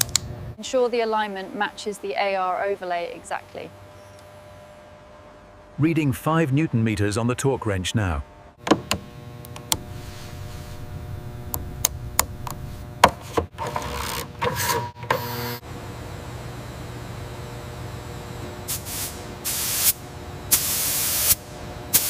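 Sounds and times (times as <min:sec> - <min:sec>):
steady workshop hum: 0:00.0 - 0:22.0
paint spray gun hissing: 0:18.7 - 0:21.4.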